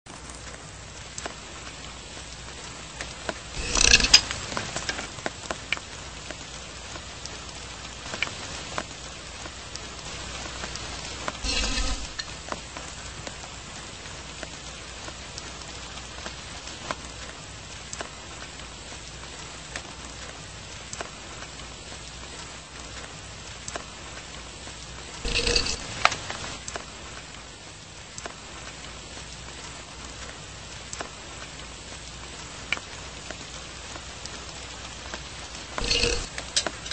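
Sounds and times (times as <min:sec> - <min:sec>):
light rain pattering: 0:00.1 - 0:36.9
short scrape: 0:03.6 - 0:04.3, 0:11.4 - 0:12.3, 0:25.2 - 0:26.3, 0:35.8 - 0:36.3.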